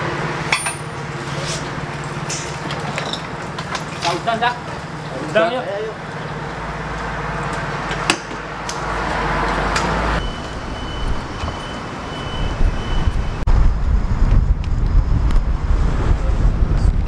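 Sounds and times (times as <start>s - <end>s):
street traffic: 0.0s - 17.0s
wind rumble on microphone: 10.2s - 17.0s.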